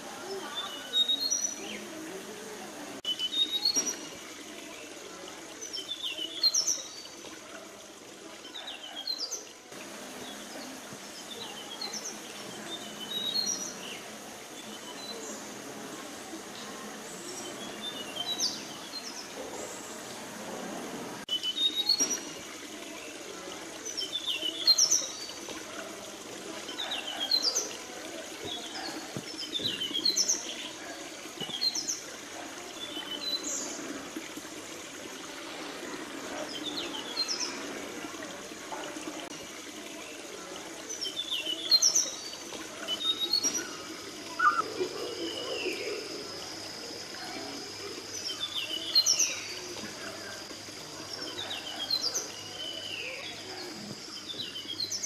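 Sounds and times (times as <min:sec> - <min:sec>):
steady background hiss: 0:00.0 - 0:55.0
birds chirping: 0:40.9 - 0:50.5.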